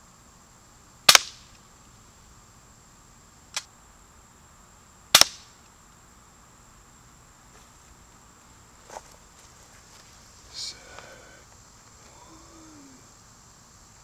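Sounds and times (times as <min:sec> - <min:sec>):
air pistol shots: 0:01.1 - 0:01.5, 0:05.1 - 0:05.5.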